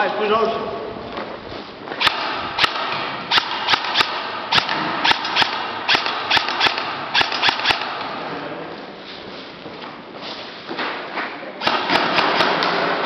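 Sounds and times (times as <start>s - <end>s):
gunshot pops: 2.0s - 8.1s.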